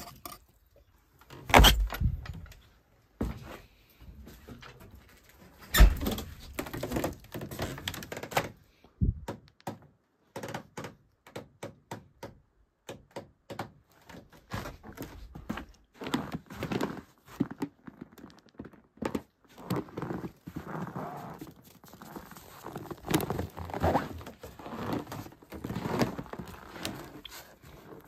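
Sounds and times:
irregular knocks and clicks: 0:09.1 - 0:14.4.

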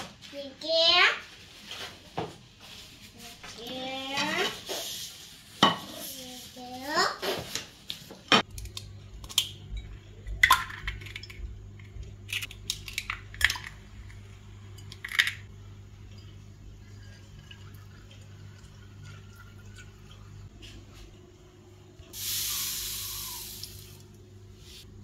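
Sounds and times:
eggs cracking on china bowl: 0:08.4 - 0:14.2
steady low hum: 0:08.4 - 0:25.0.

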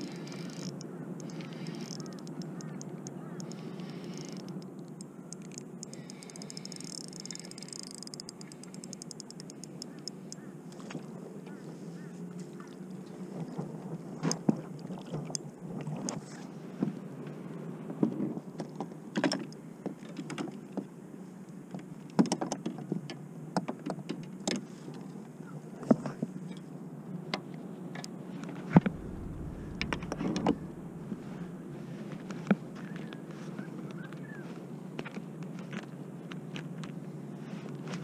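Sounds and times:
fishing gear clicking and knocking: 0:00.0 - 0:10.2
low hum: 0:28.7 - 0:32.5
low thud: 0:28.8 - 0:31.8.

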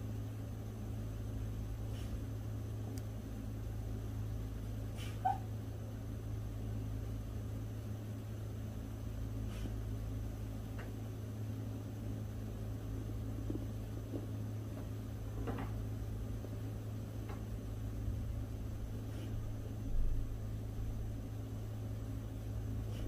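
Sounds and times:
steady low hum: 0:00.0 - 0:23.0
dog whimpering in sleep: 0:04.9 - 0:05.6.

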